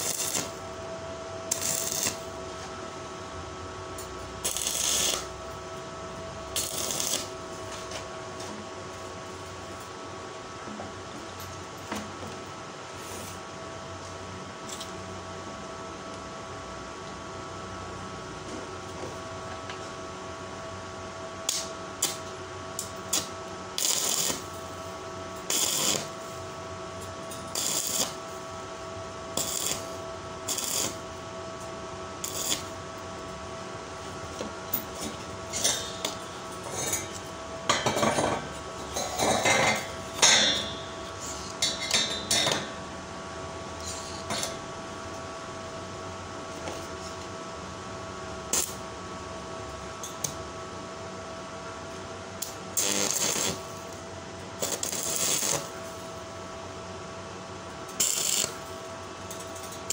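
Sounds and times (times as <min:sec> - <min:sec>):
welding arc bursts: 0:00.0 - 0:00.6, 0:01.5 - 0:02.3, 0:04.4 - 0:05.4, 0:06.5 - 0:07.3, 0:23.1 - 0:24.6, 0:25.4 - 0:26.2, 0:27.5 - 0:28.2, 0:29.3 - 0:31.1, 0:32.2 - 0:32.8, 0:48.5 - 0:48.8, 0:52.8 - 0:53.7, 0:54.6 - 0:55.7, 0:57.9 - 0:58.6
faint steady hum: 0:00.0 - 0:59.9.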